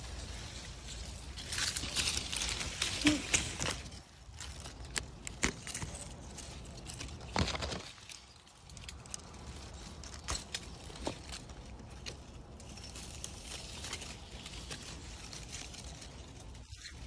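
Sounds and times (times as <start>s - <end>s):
rustling netting and leaves: 0.0s - 17.0s.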